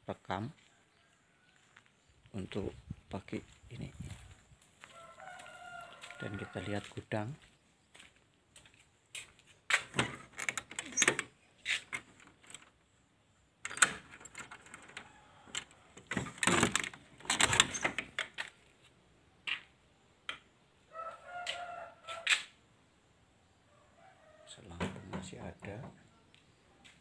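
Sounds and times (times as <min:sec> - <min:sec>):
rooster crowing: 0:01.2 - 0:01.8, 0:04.8 - 0:07.0, 0:20.9 - 0:22.4.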